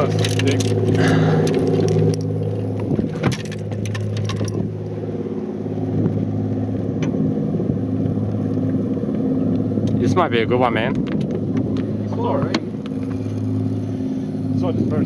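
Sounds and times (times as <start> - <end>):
outboard motor running: 0.0 - 15.0.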